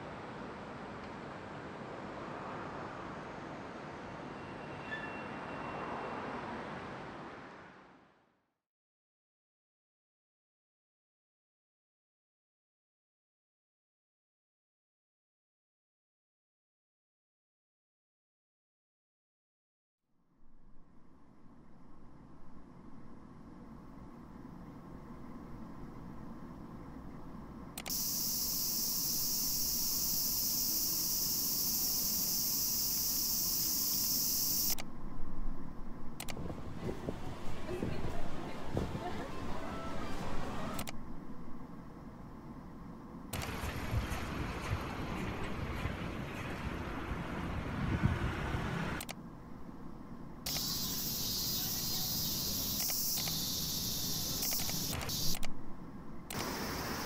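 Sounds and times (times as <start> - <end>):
cicadas singing: 27.9 - 34.8, 50.5 - 55.4, 56.4 - 57.0
high insect chorus: 27.9 - 34.8, 50.5 - 55.4, 56.4 - 57.0.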